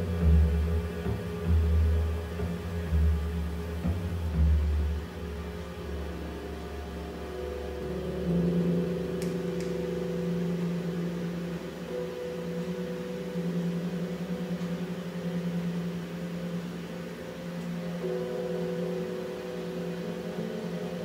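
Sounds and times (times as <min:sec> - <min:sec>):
electrical mains hum: 0:00.0 - 0:21.0
faint clicks: 0:09.2 - 0:09.8.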